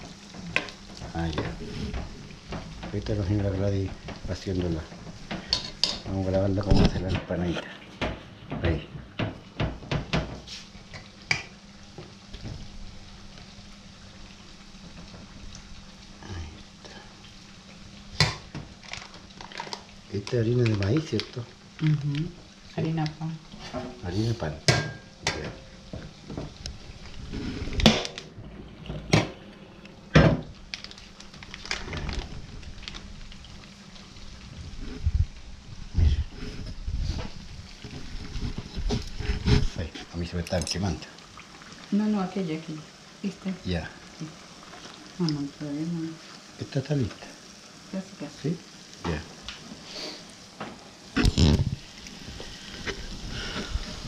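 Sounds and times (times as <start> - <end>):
steady low hiss: 0.0 - 54.0
plastic bag rustling: 18.6 - 21.5, 30.4 - 35.4.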